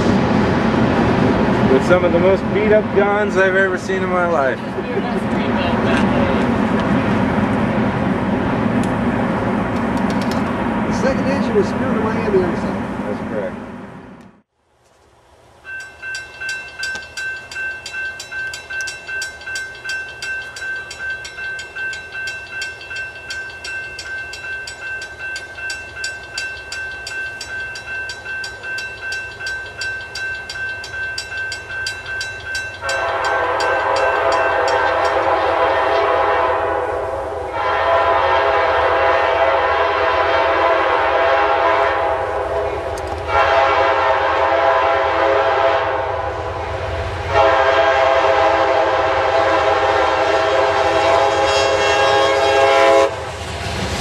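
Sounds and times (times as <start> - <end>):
locomotive rumble: 0.0 - 14.4, 15.8 - 54.0
crossing bell ringing: 15.6 - 36.1
train air horn blasts: 32.8 - 46.4, 47.3 - 53.2.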